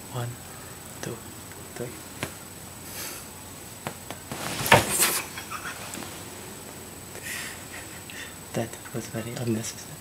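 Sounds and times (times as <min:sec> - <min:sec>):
rustling: 0:04.3 - 0:06.4.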